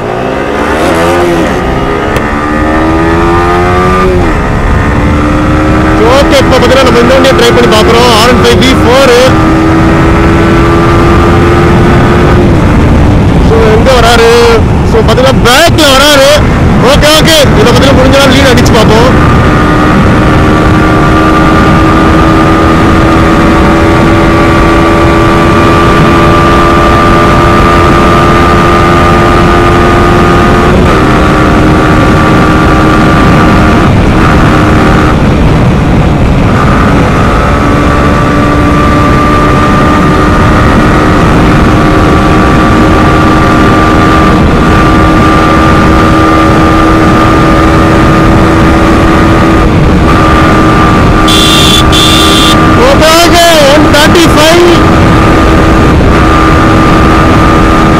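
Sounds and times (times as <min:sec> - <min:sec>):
motorcycle engine at high revs: 0:00.0 - 0:57.9
rushing wind: 0:00.0 - 0:57.9.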